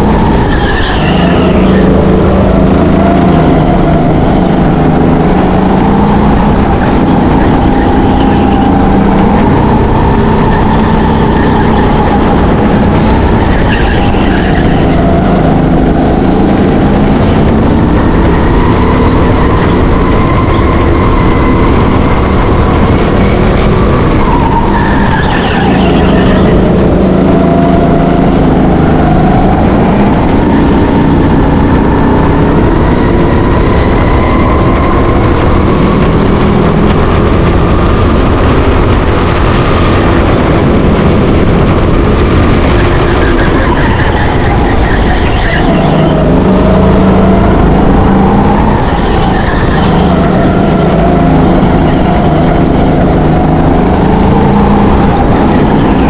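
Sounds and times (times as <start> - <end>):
go-kart engine: 0.0 - 56.0
tyre squeals: 0.4 - 2.0, 13.4 - 15.0, 24.2 - 26.6, 42.7 - 47.6, 48.4 - 50.5.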